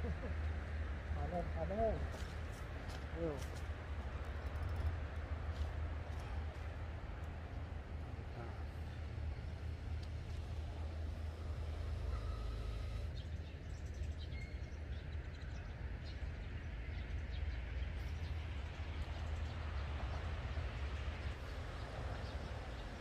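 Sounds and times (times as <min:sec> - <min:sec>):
steady low rumble: 0:00.0 - 0:23.0
faint bird chirps: 0:11.8 - 0:15.6.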